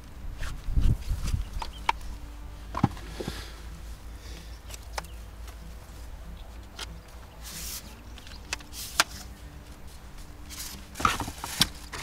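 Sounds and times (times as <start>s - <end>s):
low steady rumble: 0.0s - 12.0s
metal detector parts clicking: 4.6s - 5.6s, 6.6s - 9.4s.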